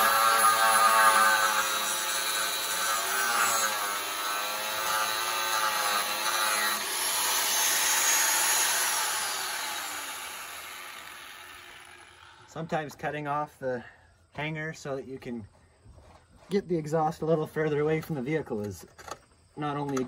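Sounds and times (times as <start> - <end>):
angle grinder cutting steel pipe: 0.0 - 12.6.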